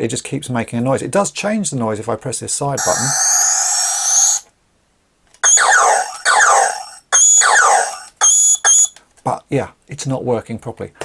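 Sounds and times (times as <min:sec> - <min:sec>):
quick falling electronic zaps: 0:02.8 - 0:04.5, 0:05.4 - 0:08.9
toy rising electronic tone: 0:02.8 - 0:04.5, 0:05.4 - 0:08.9.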